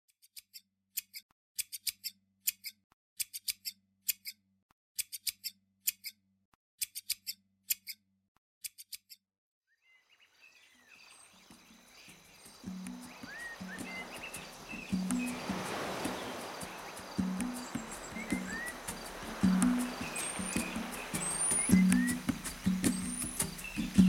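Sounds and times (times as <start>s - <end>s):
birds chirping: 9.8s - 24.0s
soft outdoor hiss: 10.1s - 24.0s.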